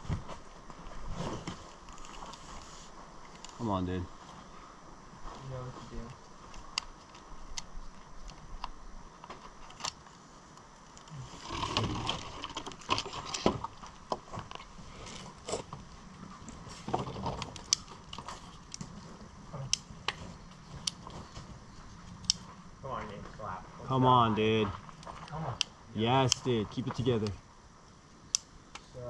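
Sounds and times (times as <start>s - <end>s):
people shuffling and scuffing: 0.0s - 6.2s, 20.1s - 25.4s.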